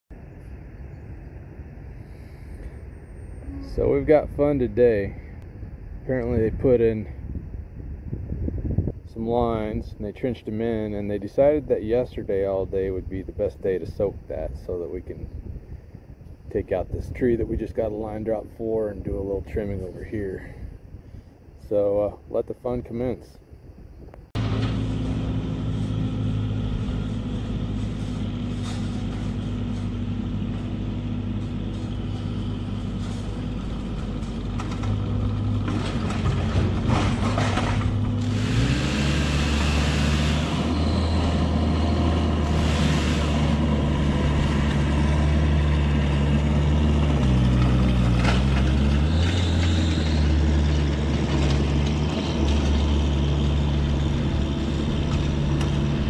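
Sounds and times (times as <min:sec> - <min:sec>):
engine running and revving: 0:24.4 - 0:56.0
knocks and clatters: 0:31.4 - 0:38.4.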